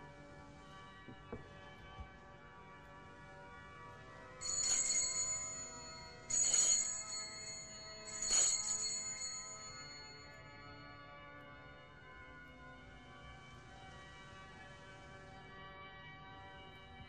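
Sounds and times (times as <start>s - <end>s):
altar bells jangling: 4.4s - 10.6s.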